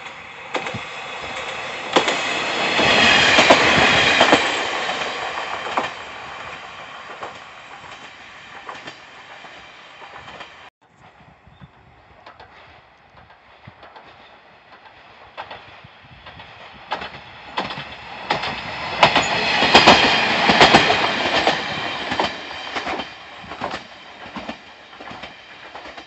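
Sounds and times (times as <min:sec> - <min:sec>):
diesel railcar passing: 0:00.0 - 0:26.0
wheels clicking over rail joints: 0:12.1 - 0:26.0.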